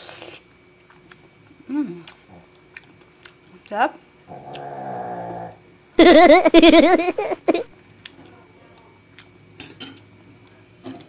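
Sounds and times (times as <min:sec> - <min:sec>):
person snoring: 0:04.3 - 0:05.6.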